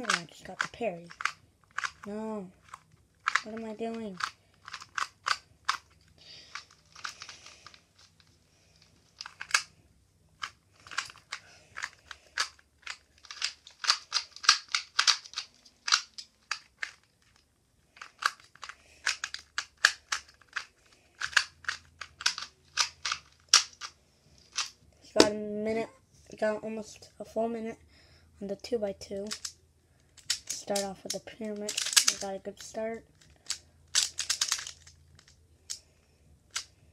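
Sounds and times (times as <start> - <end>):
speed cube clicking turns: 0.0 - 8.2, 8.8 - 9.7, 10.4 - 17.4, 18.0 - 24.8, 29.2 - 29.6, 30.2 - 32.4, 33.1 - 35.8, 36.5 - 36.8.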